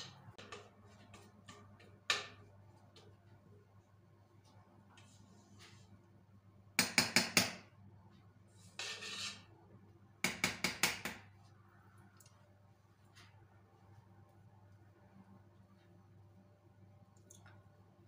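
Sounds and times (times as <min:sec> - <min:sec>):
scraping in a bowl: 0:08.5 - 0:09.5.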